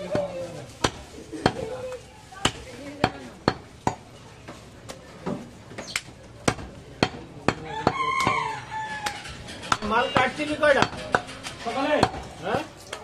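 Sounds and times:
cleaver chopping meat on wood: 6.4s - 11.3s.

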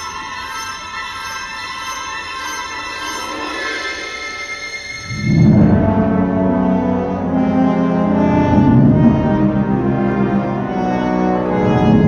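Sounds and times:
strings: 0.0s - 12.0s
brass sustained low chords: 5.1s - 12.0s.

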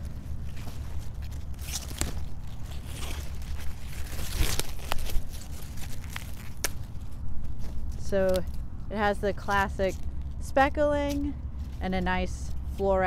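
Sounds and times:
leaves tearing and crunching: 0.0s - 8.7s, 9.8s - 10.4s.

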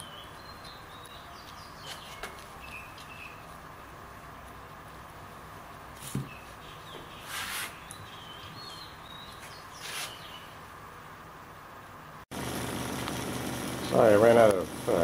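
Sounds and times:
stick scraping on wet cloth: 7.1s - 8.0s, 9.4s - 10.2s
vacuum pump humming: 12.3s - 15.0s.

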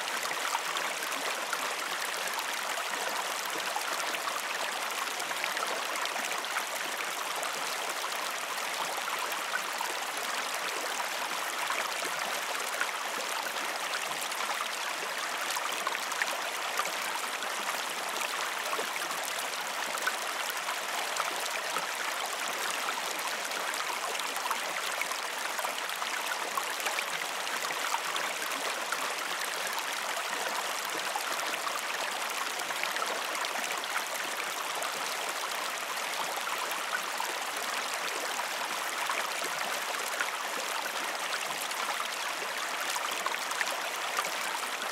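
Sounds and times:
river water flowing: 0.0s - 44.9s.

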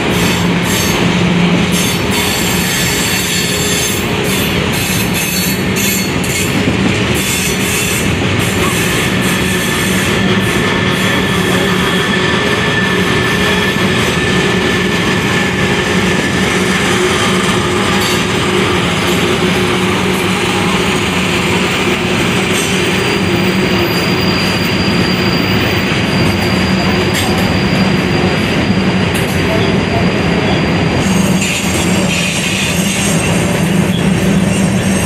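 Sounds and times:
train wheels rumbling on rail: 0.0s - 35.0s
high wheel squeal: 1.7s - 6.6s, 7.2s - 29.8s.

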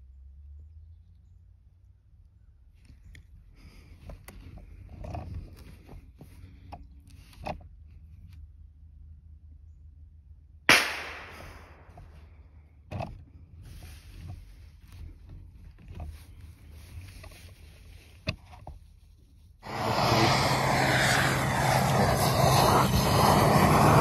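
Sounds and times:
rifle shot: 10.7s - 12.0s.

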